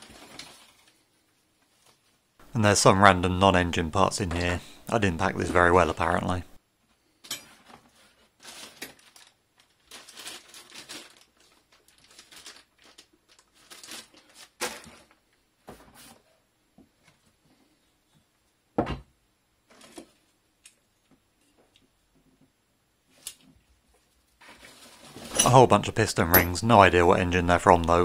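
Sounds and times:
paper and plastic crinkling: 0.0 - 2.3, 7.6 - 16.2, 19.7 - 20.4, 24.0 - 25.6.

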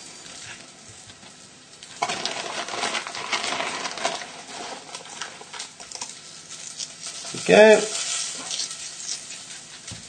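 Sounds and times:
oil sizzling in frying pan: 2.0 - 9.8.

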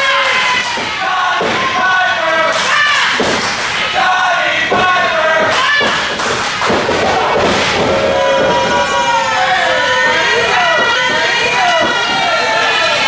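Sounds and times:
crowd shouting: 0.0 - 13.0.

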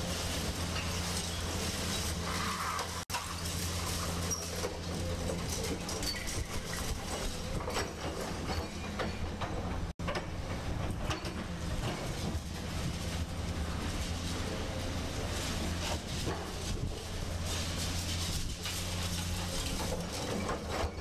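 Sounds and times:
diesel engine hum: 9.4 - 21.0.

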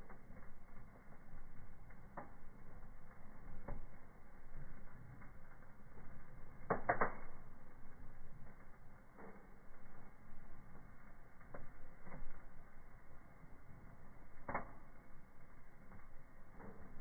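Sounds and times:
fire pops: 0.0 - 17.0
wood fire crackling: 0.0 - 17.0.

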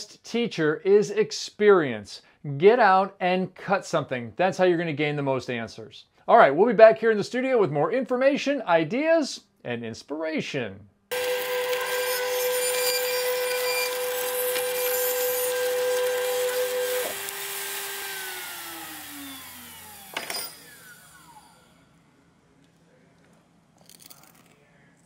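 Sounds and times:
spindle motor whining: 11.1 - 21.9.

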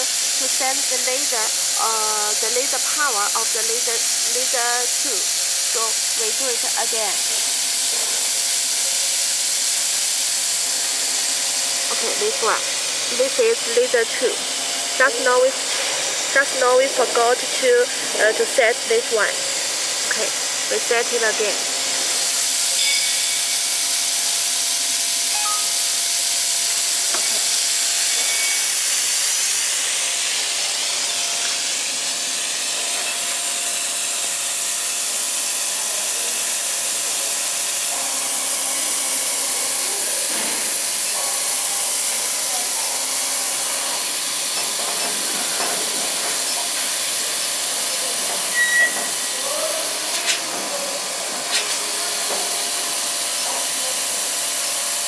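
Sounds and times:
short beep: 25.3 - 25.8, 48.5 - 49.3.

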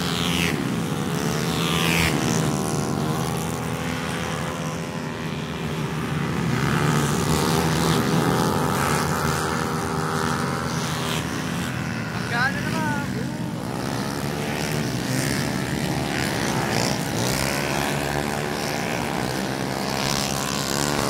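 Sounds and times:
high engine whine: 0.0 - 21.0
scooter engines racing past: 0.0 - 21.0.

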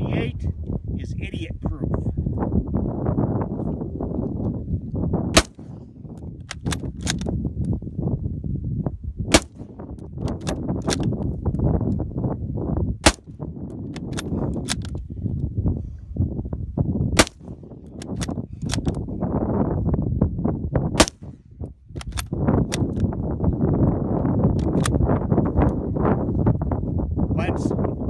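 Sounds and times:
rifle shots: 5.4 - 5.8, 9.3 - 9.8, 13.0 - 13.3, 17.2 - 17.6, 21.0 - 21.4
rifle bolt clicking: 6.4 - 7.3, 13.8 - 15.0, 17.2 - 19.0, 22.0 - 23.1, 24.6 - 25.0.

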